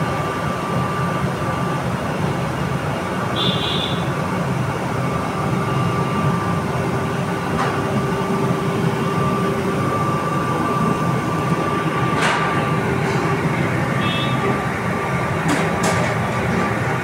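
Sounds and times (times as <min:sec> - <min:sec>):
gas burners rumbling: 0:00.0 - 0:17.0.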